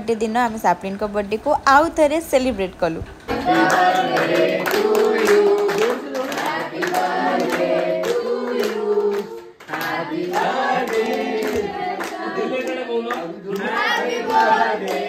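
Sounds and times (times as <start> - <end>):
people singing together: 3.2 - 15.0
rhythmic clapping: 3.2 - 15.0.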